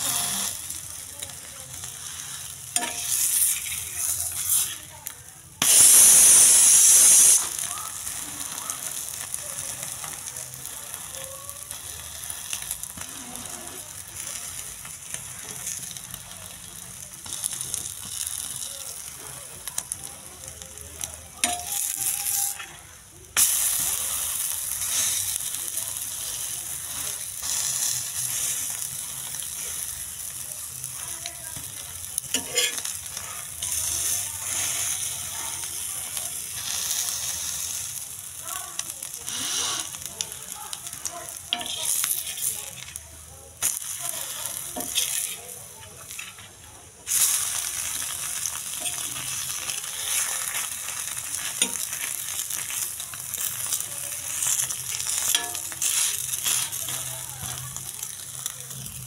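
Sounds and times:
spoon scraping pan: 0:00.0 - 0:04.9, 0:11.7 - 0:15.9, 0:31.0 - 0:37.8, 0:39.2 - 0:40.2, 0:40.9 - 0:43.0, 0:43.6 - 0:47.2, 0:47.8 - 0:57.3
egg sizzling on griddle: 0:00.0 - 0:59.0.

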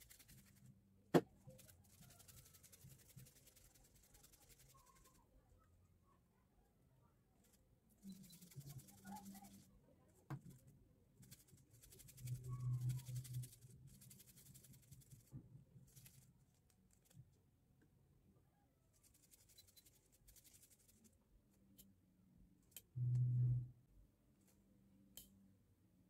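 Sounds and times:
brief low hum: 0:22.9 - 0:23.9.

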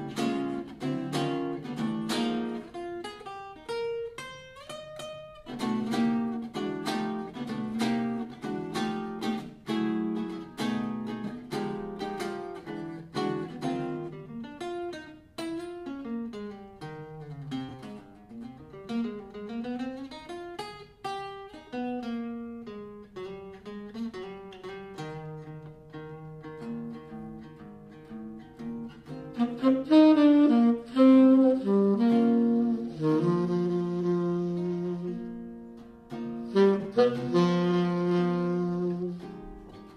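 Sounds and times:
saxophone melody: 0:00.0 - 0:15.0, 0:28.8 - 0:39.9
guitar solo: 0:00.0 - 0:39.9.

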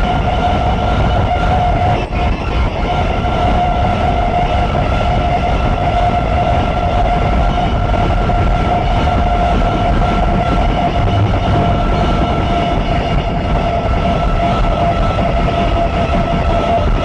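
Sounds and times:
high whine: 0:00.0 - 0:17.0
low rumble: 0:08.7 - 0:16.2.

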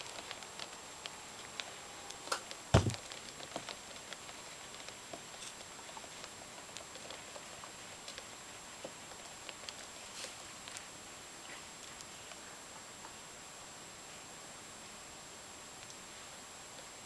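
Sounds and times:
faint ticks and patter in tub: 0:00.0 - 0:17.0
loud dull thump: 0:02.8 - 0:03.0.

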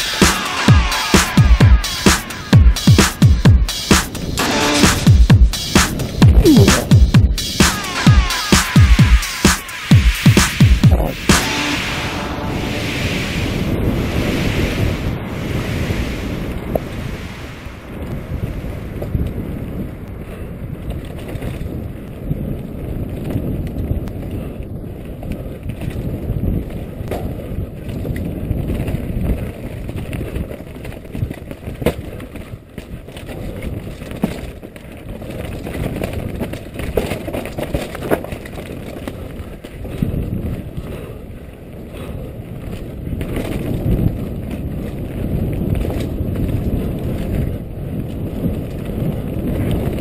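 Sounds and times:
wind buffeting microphone: 0:10.7 - 0:50.0
bike rattling over rocky trail: 0:18.0 - 0:50.0.

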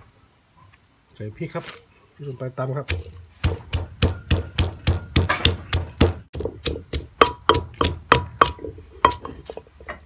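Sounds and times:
pestle pounding in clay mortar: 0:02.9 - 0:09.5.

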